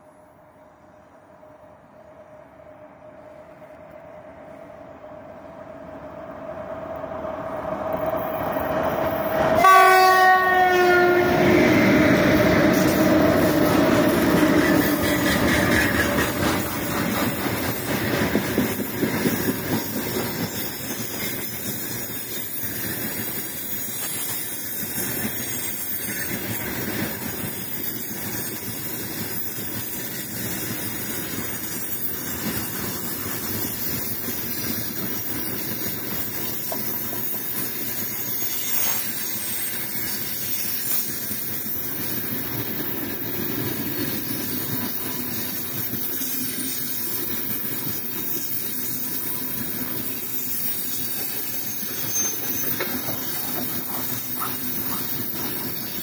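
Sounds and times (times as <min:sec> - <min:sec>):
train wagons rumbling: 0:06.9 - 0:56.0
wheels clattering on rails: 0:07.7 - 0:56.0
locomotive horn: 0:09.6 - 0:13.0.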